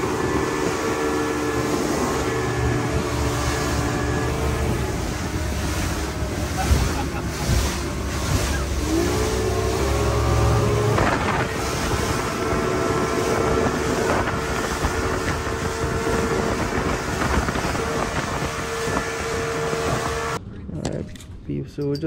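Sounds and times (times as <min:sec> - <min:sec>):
hull slamming into waves: 0:00.0 - 0:20.2
wind buffeting microphone: 0:00.0 - 0:20.4
motorboat engine drone: 0:00.0 - 0:20.8.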